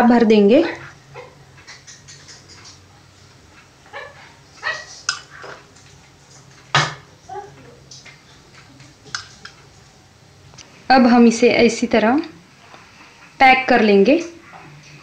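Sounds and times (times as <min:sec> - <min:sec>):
spoon scraping steel bowl: 0:04.7 - 0:05.6.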